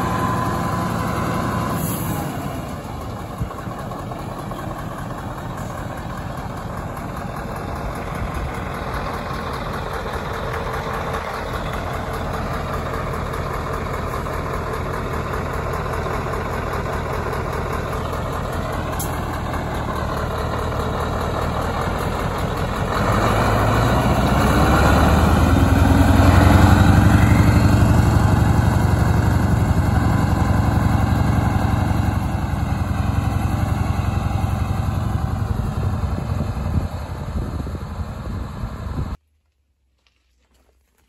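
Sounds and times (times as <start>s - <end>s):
diesel truck engine: 0.0s - 39.2s.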